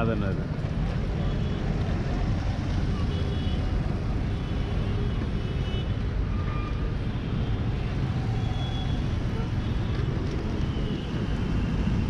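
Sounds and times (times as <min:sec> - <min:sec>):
vehicle rumbling in traffic: 0:00.0 - 0:12.0.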